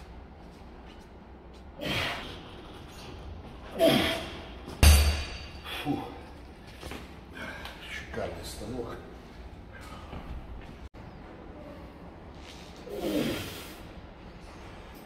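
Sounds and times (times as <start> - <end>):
man breathing with effort: 1.7 - 4.6, 5.5 - 8.0, 9.2 - 10.8
barbell clanking down: 4.7 - 5.8.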